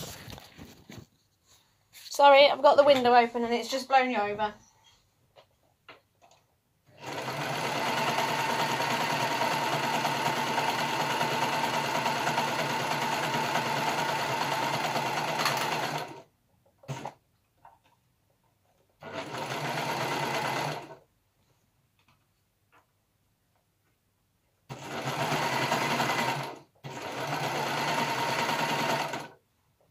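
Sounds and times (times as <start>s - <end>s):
overlocker stitching: 6.9s - 16.2s, 24.7s - 29.4s.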